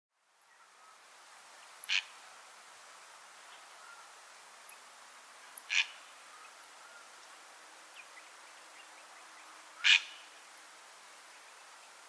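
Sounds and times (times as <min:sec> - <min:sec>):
faint steady hiss: 0:00.1 - 0:12.0
heron harsh calls: 0:05.7 - 0:06.0, 0:09.8 - 0:10.2.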